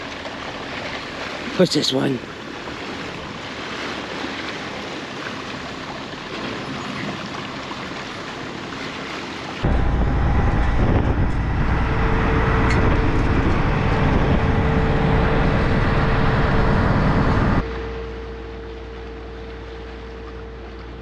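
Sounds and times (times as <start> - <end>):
diesel engine rumbling: 9.6 - 21.0
steady whine: 9.6 - 21.0.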